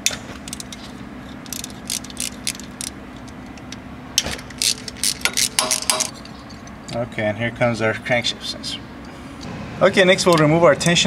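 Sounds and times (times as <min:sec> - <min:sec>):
ratchet clicking: 0:00.4 - 0:06.7.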